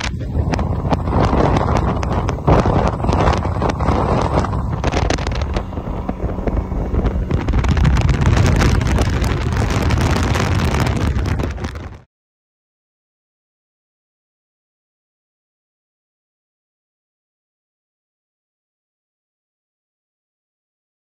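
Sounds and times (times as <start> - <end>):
boat hull noise: 0.0 - 12.1
outboard motor: 0.0 - 12.1
wind buffeting microphone: 0.0 - 12.1.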